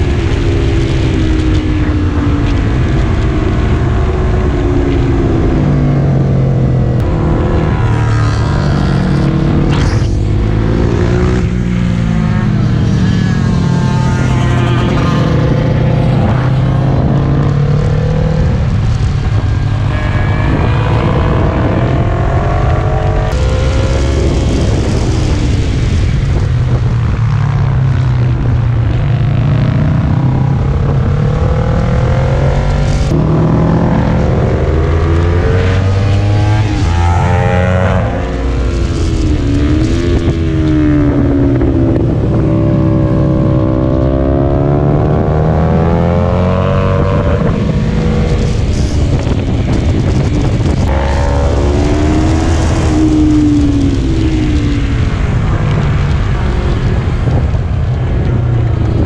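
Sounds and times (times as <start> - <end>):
motorcycle engine revving: 0.0 - 59.0
wind rush on microphone: 0.0 - 59.0.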